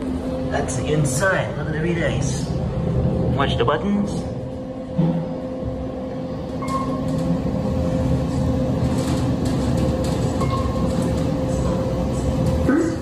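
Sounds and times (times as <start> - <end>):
elevator hum and rumble: 0.0 - 13.0.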